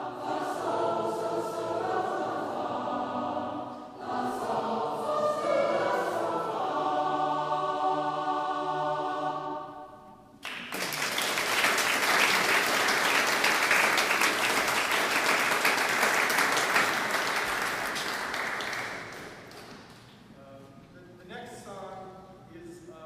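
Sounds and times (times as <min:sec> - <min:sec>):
choir holding a chord: 0:00.0 - 0:10.3
audience applause: 0:10.4 - 0:19.9.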